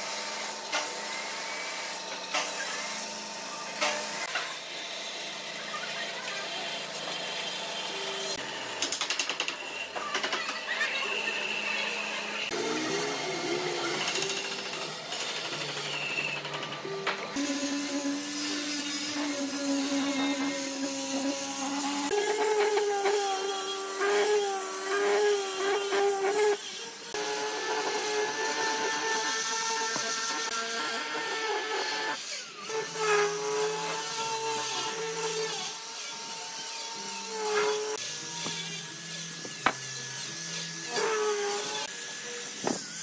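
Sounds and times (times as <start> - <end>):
angle grinder sanding wood: 9.7 - 16.3, 17.3 - 43.0.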